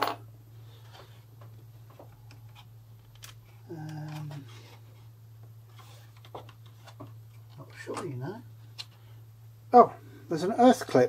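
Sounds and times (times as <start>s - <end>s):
steady low hum: 0.0s - 11.0s
person humming: 3.6s - 4.5s.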